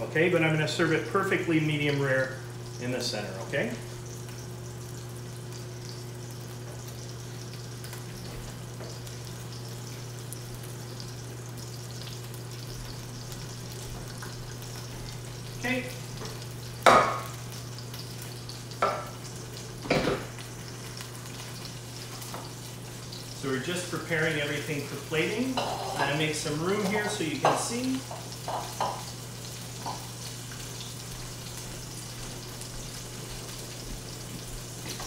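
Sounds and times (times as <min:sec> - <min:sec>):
fish sizzling in a pan: 0:00.0 - 0:35.0.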